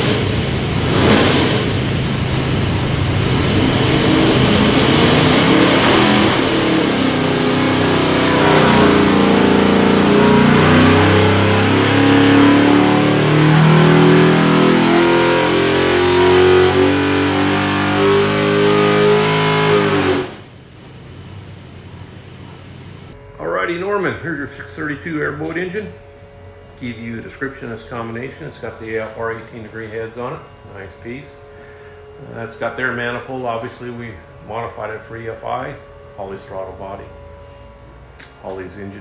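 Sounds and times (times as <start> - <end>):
loud engine on a dyno: 0.0 - 39.0.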